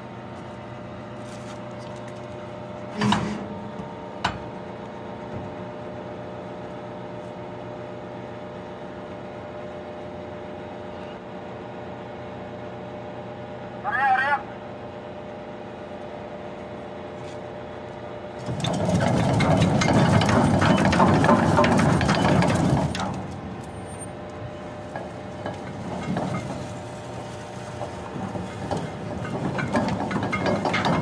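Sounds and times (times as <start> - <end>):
machinery hum: 0.0 - 31.0
anchor chain clattering: 28.0 - 31.0.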